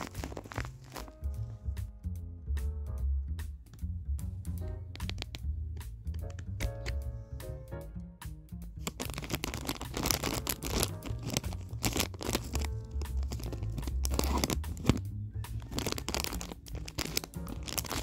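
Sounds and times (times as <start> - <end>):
plastic bag crinkling: 0.0 - 1.4, 8.8 - 18.0
background music: 0.0 - 18.0.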